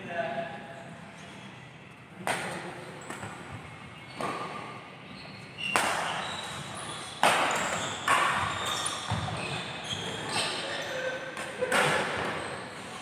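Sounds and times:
rackets hitting shuttlecock in hall: 2.1 - 4.9, 5.6 - 13.0.

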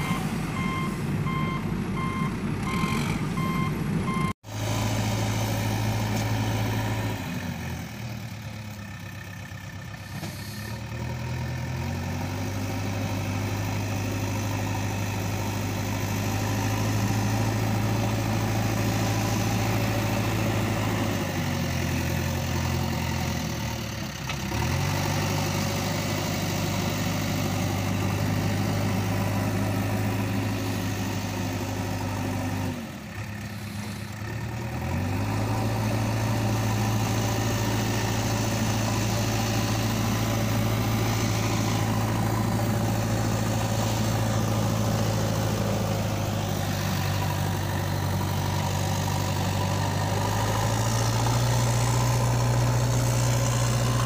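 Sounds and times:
reversing alarm beeping: 0.0 - 4.4
heavy vehicle engine droning: 0.0 - 54.0.

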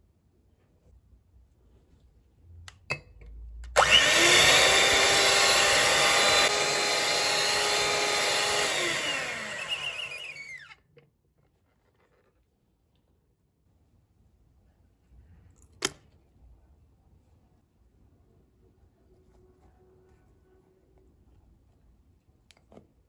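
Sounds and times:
electric hand mixer whining: 3.8 - 10.8.

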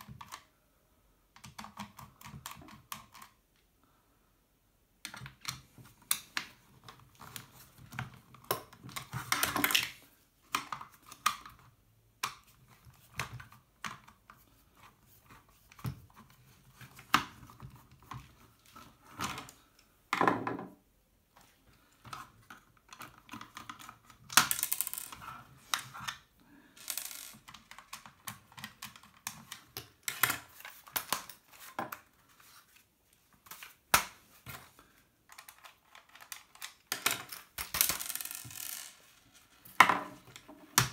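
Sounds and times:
screws dropped onto wooden table: 20.1 - 20.8, 39.8 - 40.2
screwdrivers clicking and tapping: 26.8 - 32.0, 35.3 - 38.9.

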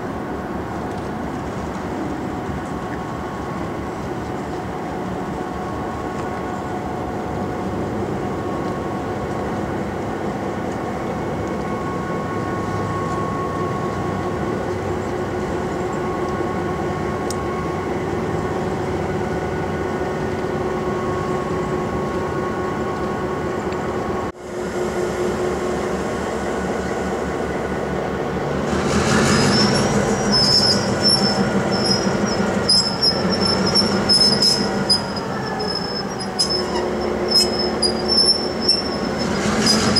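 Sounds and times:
diesel locomotive idling: 1.8 - 39.9
high metallic squealing: 28.8 - 39.9.

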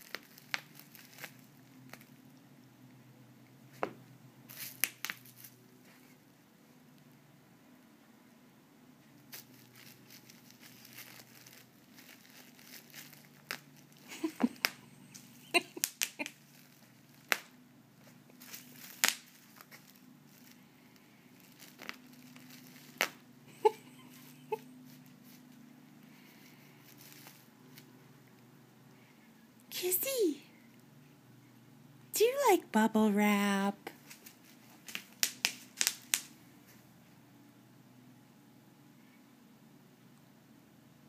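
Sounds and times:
bubble wrap crinkling: 0.0 - 2.2, 4.5 - 6.2, 9.3 - 25.5, 26.2 - 27.9, 33.9 - 36.3
bubble wrap popping: 0.0 - 2.2, 3.8 - 5.6, 9.3 - 17.6, 18.4 - 20.6, 21.4 - 23.3, 26.8 - 27.9, 34.0 - 36.3.

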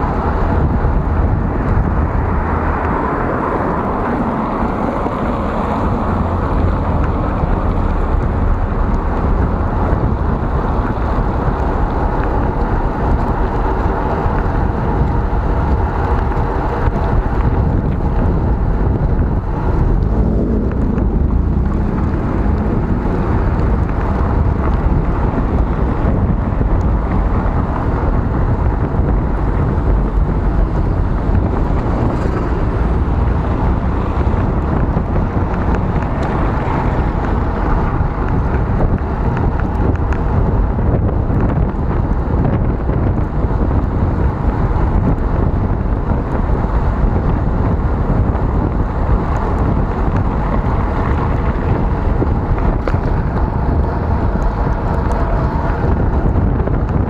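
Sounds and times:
wind rumble on microphone: 0.0 - 57.0
tyres hissing on wet road: 0.1 - 42.9.

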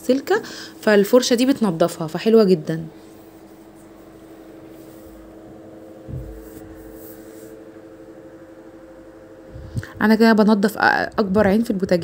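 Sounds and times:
low machine hum: 0.0 - 12.0
dull thump: 6.0 - 7.0.

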